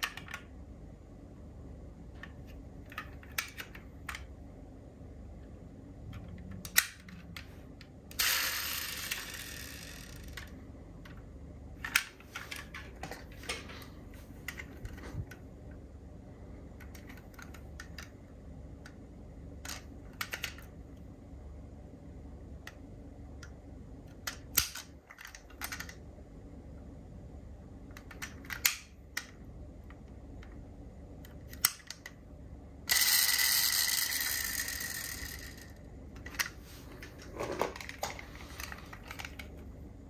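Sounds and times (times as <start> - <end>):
parts snapping open and shut: 24.1 - 26.0, 27.9 - 29.3.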